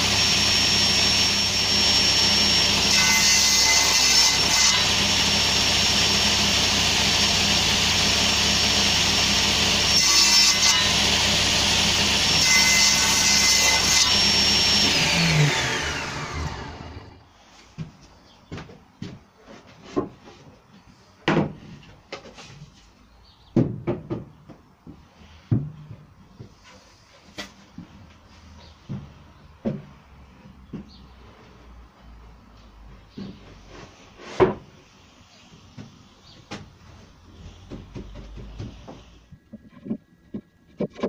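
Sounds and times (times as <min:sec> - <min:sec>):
table saw blade whine: 0:00.0 - 0:17.3
wooden boards knocking: 0:23.6 - 0:26.0, 0:37.6 - 0:41.0.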